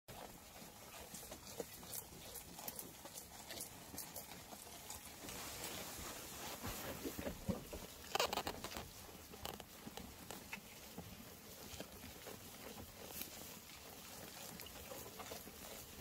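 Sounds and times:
grass rustling: 0:00.1 - 0:16.0
sheep chewing grass: 0:00.1 - 0:16.0.

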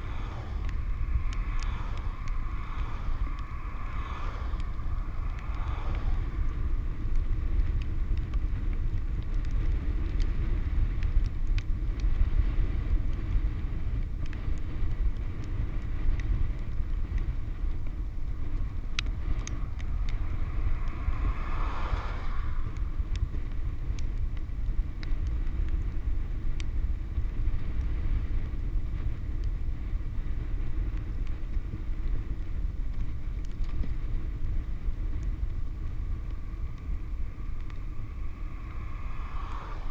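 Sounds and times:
car passing whoosh: 0:00.0 - 0:07.2, 0:19.4 - 0:23.4, 0:36.5 - 0:39.9
wind buffeting microphone: 0:00.0 - 0:39.9
small scattered clicks: 0:00.1 - 0:39.9.

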